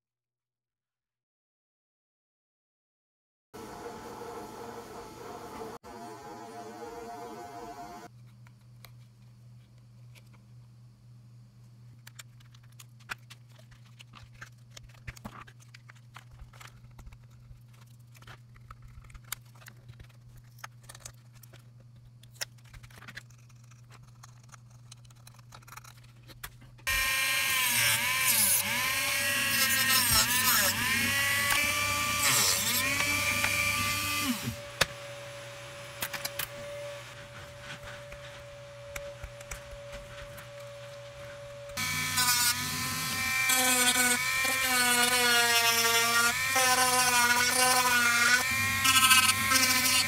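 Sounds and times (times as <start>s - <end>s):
rotary tool whining: 26.9s - 50.0s.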